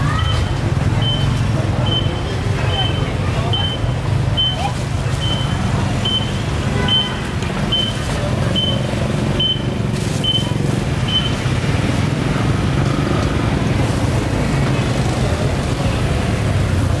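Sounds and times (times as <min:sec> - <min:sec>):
high electronic beeps: 0:00.2 - 0:07.1, 0:07.7 - 0:11.7.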